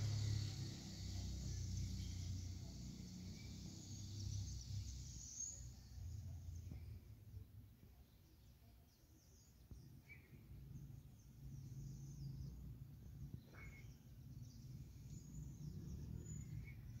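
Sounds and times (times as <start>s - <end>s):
small birds chirping: 0.0s - 17.0s
low bird calls: 13.2s - 17.0s.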